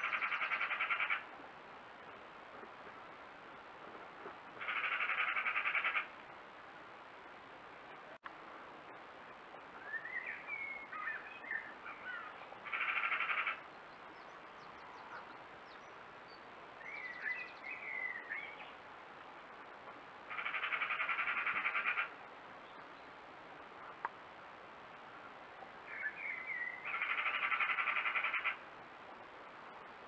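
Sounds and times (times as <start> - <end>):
birds chirping and warbling: 0.0 - 1.3, 4.6 - 6.1, 9.8 - 18.8, 20.3 - 23.2, 25.9 - 28.6
bird rattling call: 4.6 - 6.1, 12.7 - 13.6, 20.3 - 22.1, 26.8 - 28.6.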